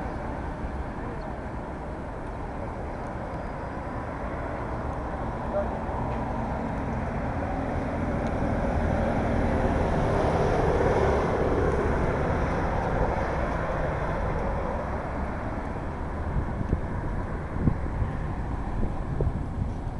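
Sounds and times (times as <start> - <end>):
traffic rumble: 0.0 - 19.9
wind on microphone: 7.5 - 19.9.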